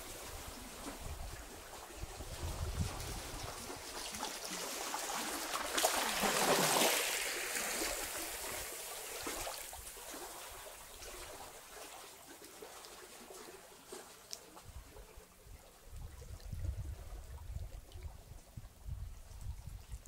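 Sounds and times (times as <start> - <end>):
waves washing over rocky shore: 4.6 - 9.8.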